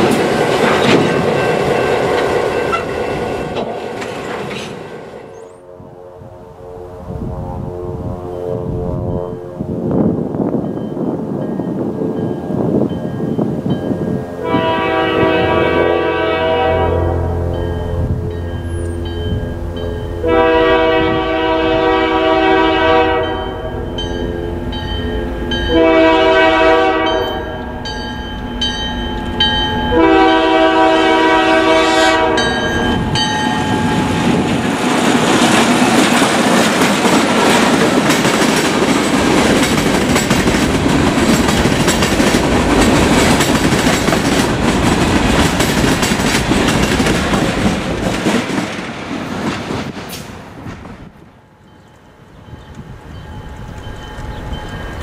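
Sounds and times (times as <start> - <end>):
wheels clacking over rail joints: 0.0 - 5.4, 32.5 - 55.0
locomotive air horn blasts: 5.4 - 10.0, 14.3 - 18.4, 20.2 - 23.9, 25.7 - 27.8, 29.9 - 32.9.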